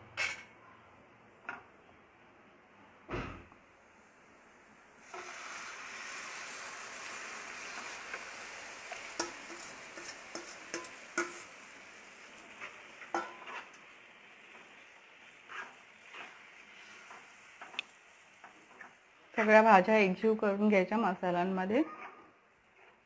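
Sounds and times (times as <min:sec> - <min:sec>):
vegetables sizzling in oil: 0:04.9 - 0:21.8
steel bowl and spoon scraping pan: 0:07.6 - 0:11.7, 0:12.4 - 0:13.8, 0:14.5 - 0:17.8.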